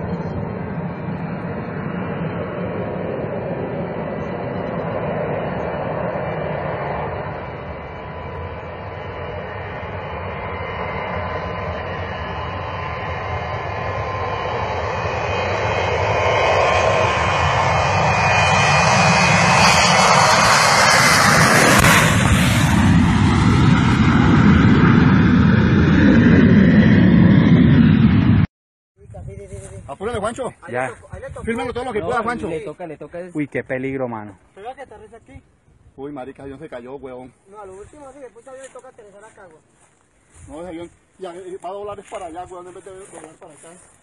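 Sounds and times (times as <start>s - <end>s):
jet engines at takeoff power: 0.0s - 28.5s.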